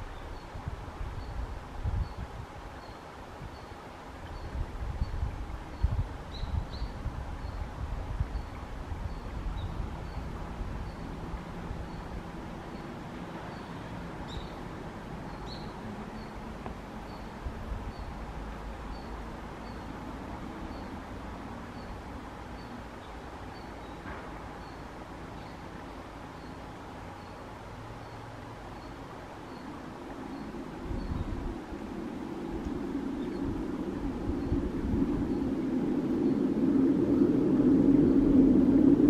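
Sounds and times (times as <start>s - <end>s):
low rumble: 30.7s - 39.0s.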